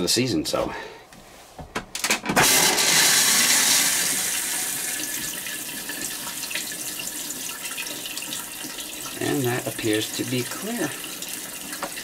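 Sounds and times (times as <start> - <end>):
toilet flushing: 2.4 - 12.0.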